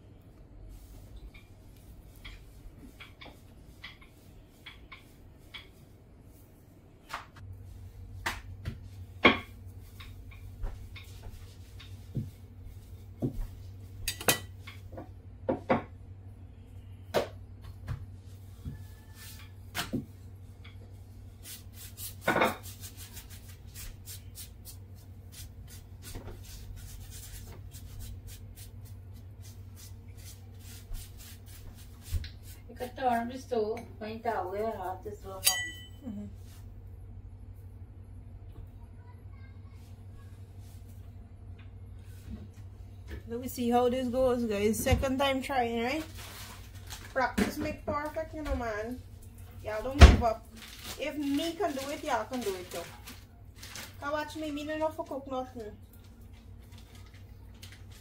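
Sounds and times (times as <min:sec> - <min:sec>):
low steady hum: 0:00.0 - 0:58.0
kitchen utensils clinking: 0:35.4 - 0:36.0.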